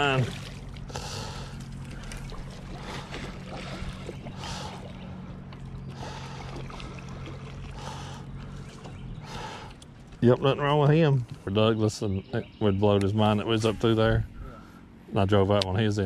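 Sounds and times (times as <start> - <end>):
water sloshing against boat hull: 0.0 - 11.5
steady low hum: 0.0 - 16.0.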